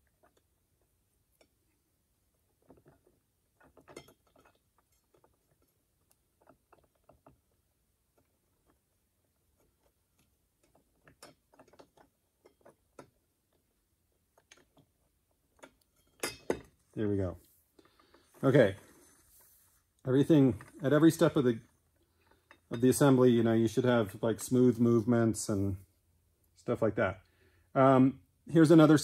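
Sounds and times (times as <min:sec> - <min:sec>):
metal parts clicking and tapping: 0:02.6 - 0:07.6, 0:09.6 - 0:13.6.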